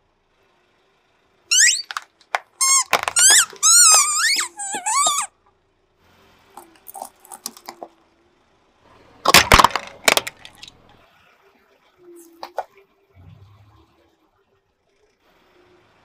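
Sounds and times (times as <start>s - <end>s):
plastic container cracking and crunching: 1.8s - 4.0s, 6.6s - 7.9s, 9.2s - 10.7s.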